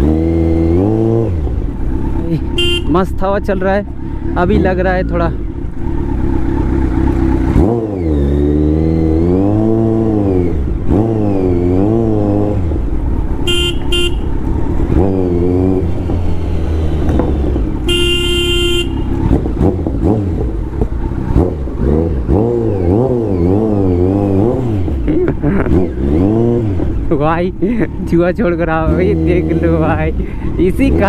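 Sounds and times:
motorcycle engine revving: 0.0 - 31.0
vehicle horn beeping: 2.5 - 3.0, 13.4 - 14.4, 17.8 - 19.3.

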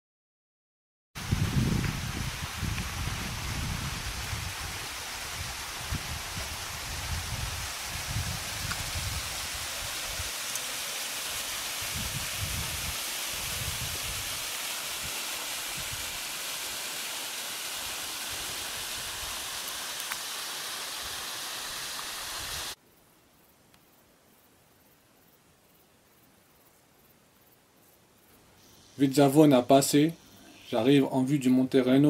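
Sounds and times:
wind buffeting microphone: 1.2 - 10.3, 11.8 - 14.4
stream rushing over rocks: 1.2 - 22.8.

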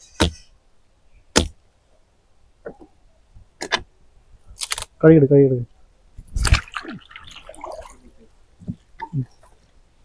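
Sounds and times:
knife chopping roots: 1.4 - 1.6.

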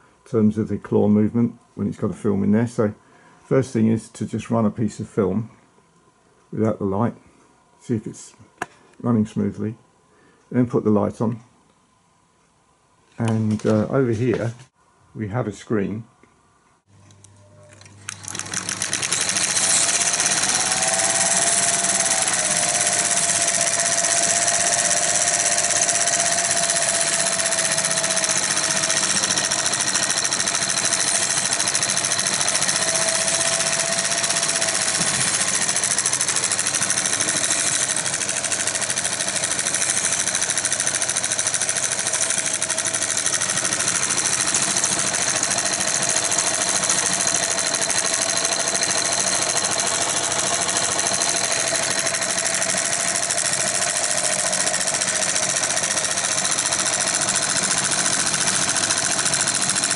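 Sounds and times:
film projector motor whining: 17.6 - 59.9.

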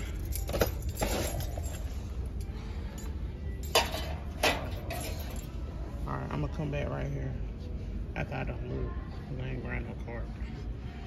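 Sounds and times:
ornaments clinking and knocking: 0.0 - 2.0
low shop hum: 0.0 - 11.0.

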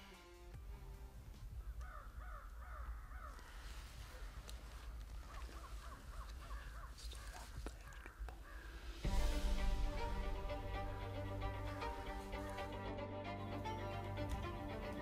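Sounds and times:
birds calling in quick notes: 1.4 - 9.1.

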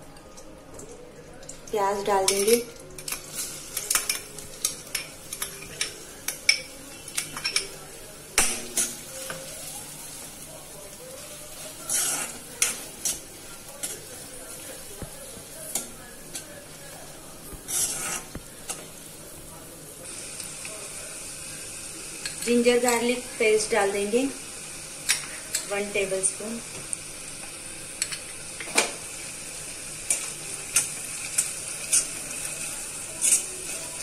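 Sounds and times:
onions sizzling in oil: 1.5 - 34.0
metal spoon scraping a pan: 11.5 - 14.6, 17.6 - 19.0.

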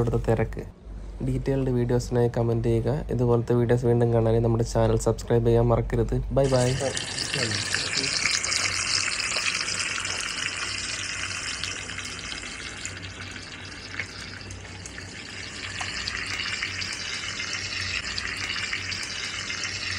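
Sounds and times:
sizzling hiss with crackles: 6.4 - 19.9.

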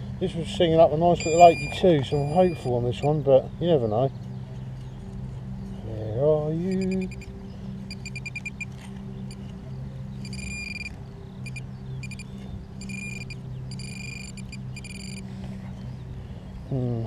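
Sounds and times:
low steady hum: 0.0 - 17.0
metal detector beeping: 1.2 - 2.8, 7.9 - 8.7, 10.2 - 15.2.

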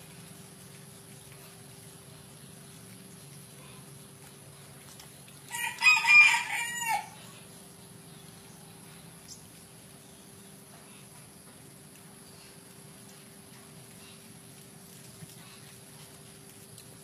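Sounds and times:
rooster crowing: 5.5 - 7.2.

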